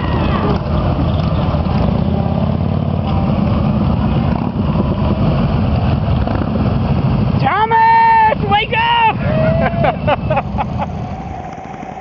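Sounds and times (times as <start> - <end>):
motorcycles riding past: 0.0 - 12.0.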